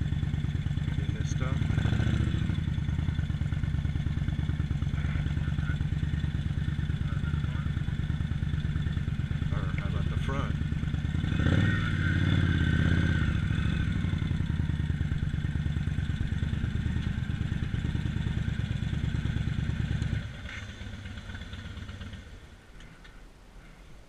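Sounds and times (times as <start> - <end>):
motorcycle engine running slowly: 0.0 - 23.2.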